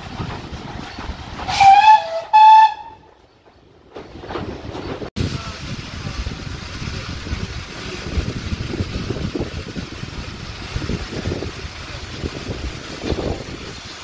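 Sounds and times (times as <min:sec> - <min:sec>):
steam train rumbling: 0:00.0 - 0:14.0
wind on microphone: 0:05.2 - 0:14.0.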